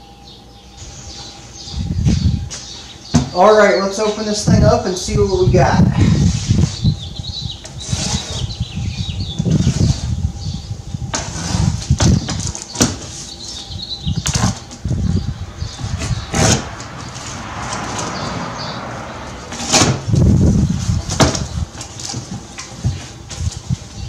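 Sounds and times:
dull thumps: 3.1s - 3.4s
cardboard rustling and scraping: 7.6s - 8.6s, 11.1s - 13.7s, 19.5s - 20.1s, 20.7s - 24.0s.

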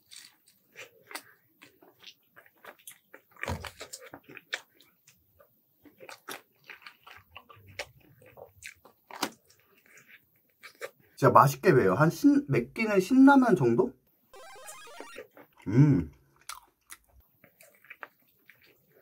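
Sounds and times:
chewing: 0.0s - 11.2s, 16.1s - 19.0s
crunching fried chicken: 0.0s - 11.2s, 15.7s - 19.0s.

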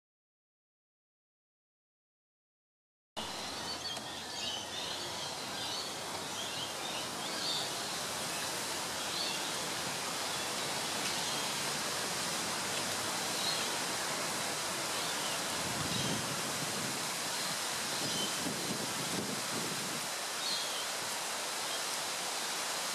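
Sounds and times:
outdoor background hiss: 3.2s - 22.9s.

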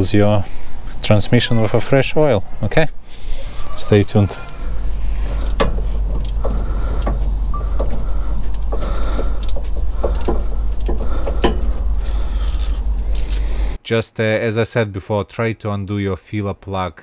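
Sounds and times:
steady low rumble: 0.0s - 13.8s
hand pump strokes: 3.2s - 13.7s.

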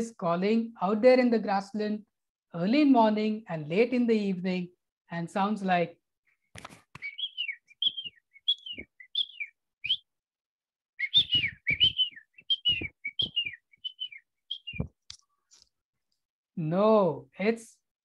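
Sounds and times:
francolin calling: 7.0s - 10.1s, 11.0s - 15.0s.

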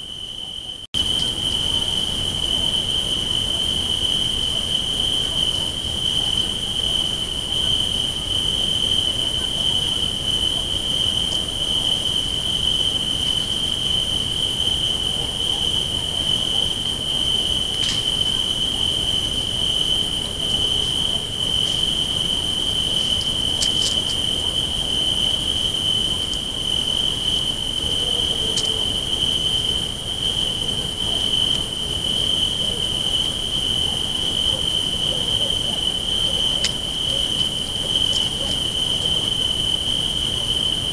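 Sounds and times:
constant hiss: 0.0s - 40.9s.

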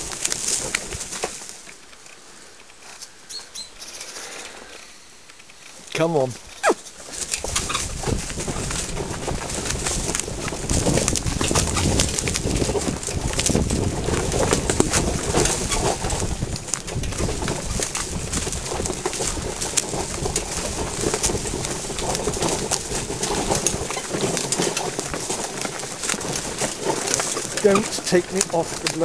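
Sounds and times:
carriage wheels rumbling on track: 7.1s - 29.0s.

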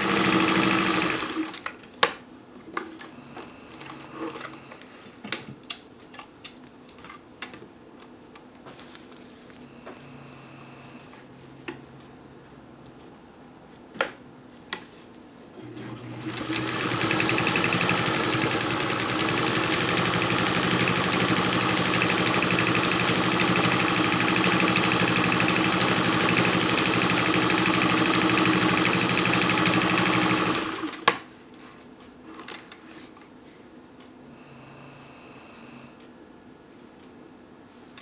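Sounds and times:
electric sewing machine running: 0.0s - 1.6s, 15.6s - 31.1s
sewing machine clicks: 15.7s - 31.1s.

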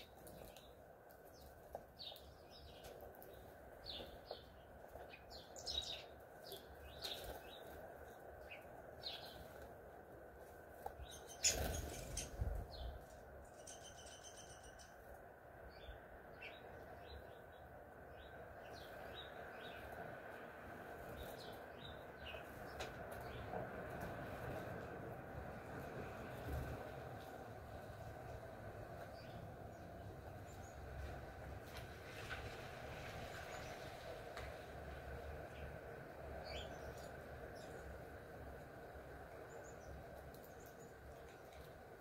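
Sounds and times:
songbirds chirping: 0.0s - 42.0s
rapid buzzy bird chatter: 11.0s - 15.0s.

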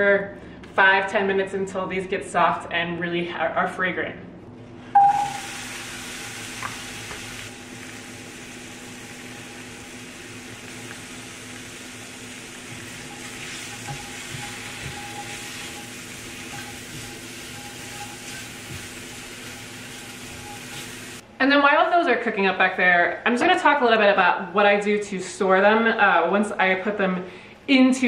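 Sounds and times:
apple sizzling in frying pan: 5.0s - 21.2s
light stirring: 12.6s - 21.0s.

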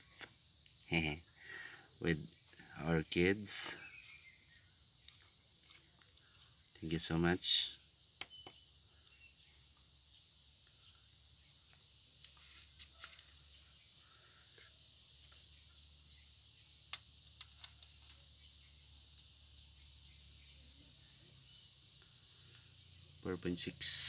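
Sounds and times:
faint steady hiss: 0.0s - 24.0s
metallic chain clinks: 15.1s - 15.8s.

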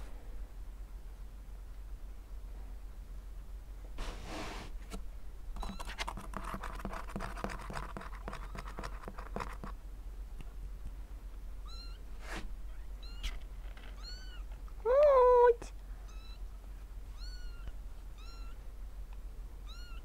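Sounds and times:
kittens scratching on cardboard: 5.6s - 9.8s, 12.2s - 12.5s
paw clicks: 5.6s - 9.8s
kittens mewing: 17.1s - 18.6s.

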